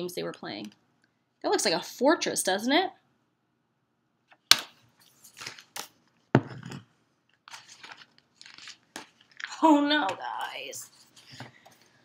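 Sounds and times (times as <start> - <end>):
page turning rustle: 4.5 - 6.0, 7.4 - 9.5.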